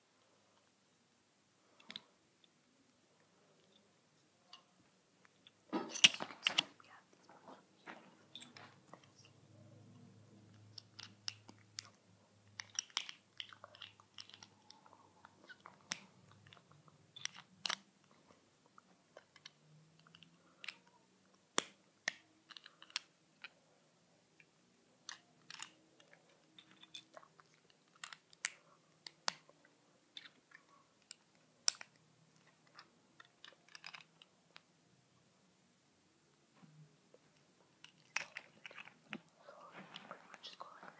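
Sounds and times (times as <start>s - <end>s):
plastic bricks clicking together: 10.6s - 14.8s, 15.4s - 17.9s, 19.1s - 20.9s, 21.5s - 23.6s, 25.0s - 29.5s, 30.1s - 34.6s, 37.8s - 39.3s.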